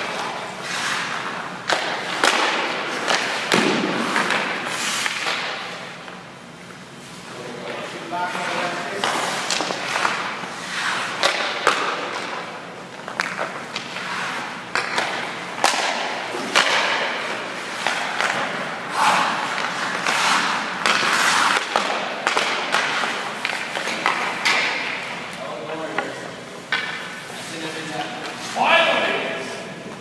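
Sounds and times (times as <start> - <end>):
skates scraping on ice: 0.0 - 5.9, 7.0 - 25.2
sticks and pucks clacking: 0.0 - 6.7, 7.6 - 28.8
goalie pads thudding on ice: 1.6 - 5.8, 8.9 - 25.1.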